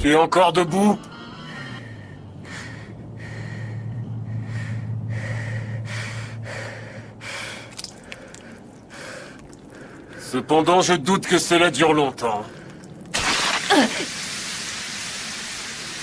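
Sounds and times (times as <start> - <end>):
low hum: 0.0 - 14.5
woman panting heavily: 2.0 - 10.2.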